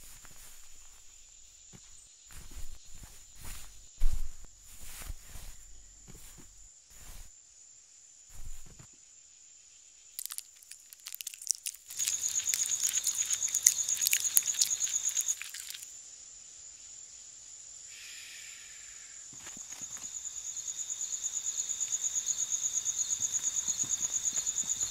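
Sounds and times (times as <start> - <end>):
crickets chirring: 0.0 - 24.9
caterpillar crunching a leaf: 10.2 - 15.9, 22.8 - 24.9.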